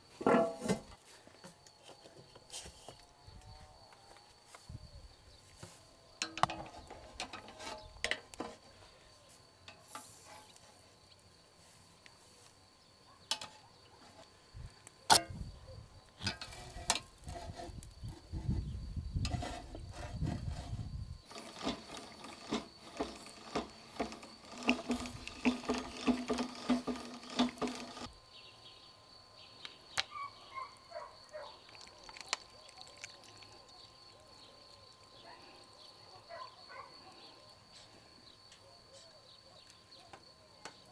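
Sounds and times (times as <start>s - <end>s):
metal skewers clanking on grill: 21.3s - 28.1s.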